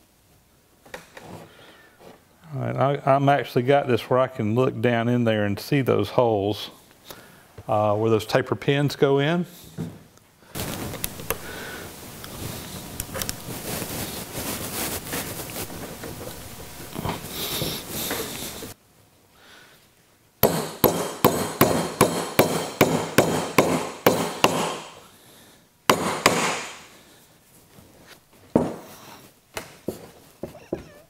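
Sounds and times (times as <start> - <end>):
hammer tapping steel pins: 20.4 - 24.9.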